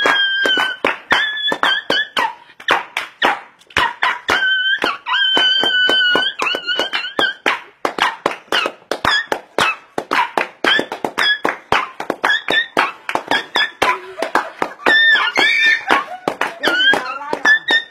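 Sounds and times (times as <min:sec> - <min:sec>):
rhythmic clapping: 0:00.0 - 0:17.9
dog yipping and whining: 0:03.8 - 0:11.4.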